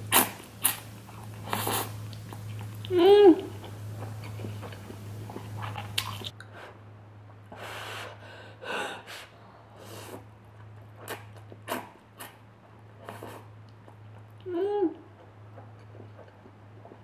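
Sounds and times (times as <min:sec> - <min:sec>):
person chewing: 0:00.0 - 0:06.4, 0:10.1 - 0:17.0
steady low hum: 0:00.0 - 0:17.0.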